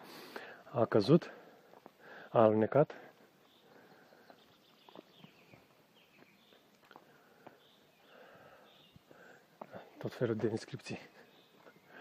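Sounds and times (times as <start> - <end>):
footsteps on wet dirt trail: 0.0 - 12.0
faint bird chirps: 3.3 - 12.0.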